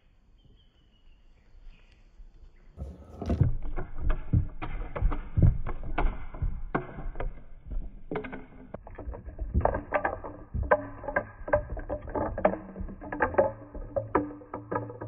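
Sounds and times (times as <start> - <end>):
ball clacking over slats: 2.8 - 15.0
steel ball rolling on wooden rails: 2.8 - 15.0.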